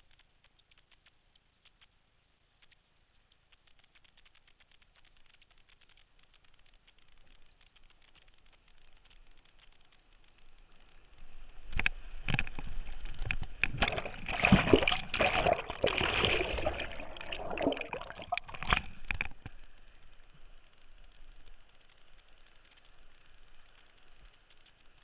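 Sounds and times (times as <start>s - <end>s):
paddle strokes splashing: 13.7s - 18.9s
whitewater splashing: 13.7s - 19.0s.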